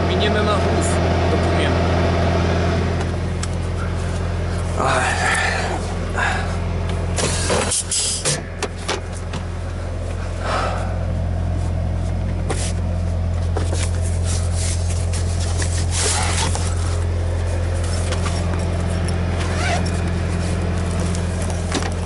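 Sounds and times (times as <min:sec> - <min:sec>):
diesel truck engine idling: 0:00.0 - 0:22.0.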